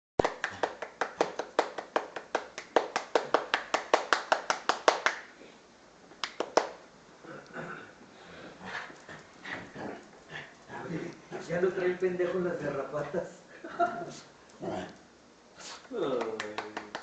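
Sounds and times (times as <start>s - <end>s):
rapid hand clapping: 0.2s - 5.3s, 6.2s - 6.8s, 16.0s - 17.0s.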